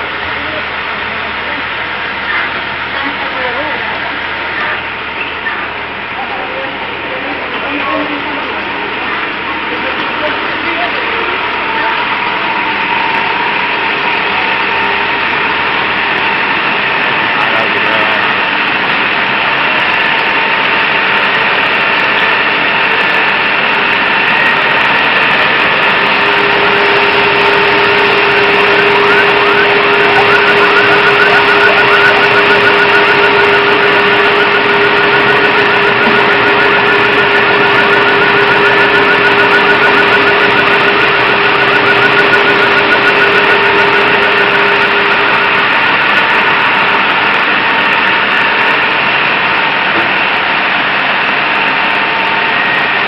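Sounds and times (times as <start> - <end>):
fire engine motor running: 0.0 - 53.0
lower steady tone: 21.1 - 48.6.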